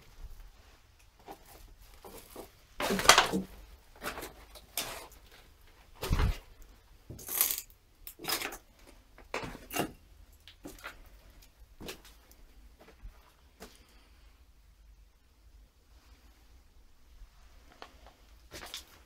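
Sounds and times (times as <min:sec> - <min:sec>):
footsteps crunching over rubble: 0:08.2 - 0:13.9.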